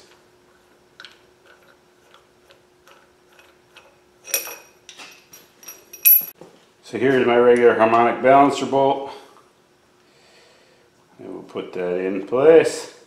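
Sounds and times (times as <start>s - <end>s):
ringing metal clink: 4.3s - 6.4s.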